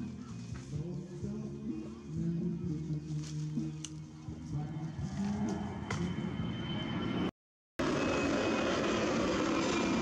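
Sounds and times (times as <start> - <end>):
background music with low held notes: 0.0 - 6.8.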